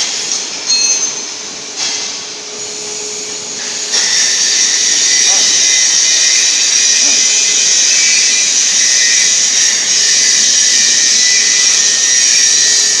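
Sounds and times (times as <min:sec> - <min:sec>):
welding positioner hissing: 0:01.6 - 0:13.0.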